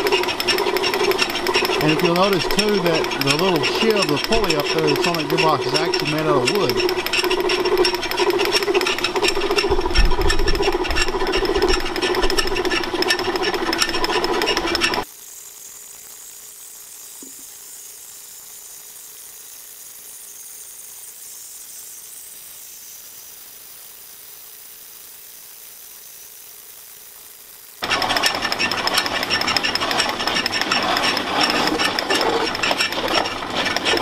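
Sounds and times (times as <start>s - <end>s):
milling cutter turning: 0.0s - 20.1s, 27.8s - 34.0s
milling machine humming: 0.0s - 34.0s.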